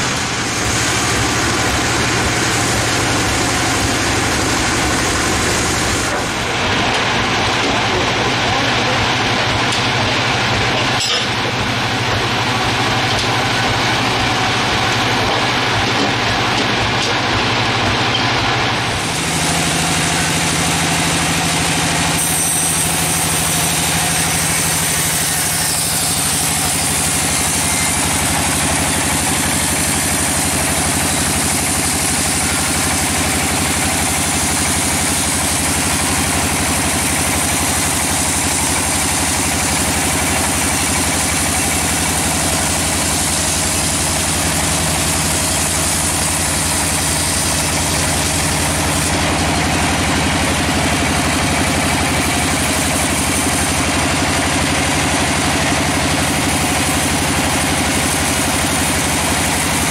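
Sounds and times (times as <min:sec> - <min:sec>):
sawmill machine hum: 0:00.0 - 0:59.9
saw blade cutting log hiss: 0:18.8 - 0:49.2.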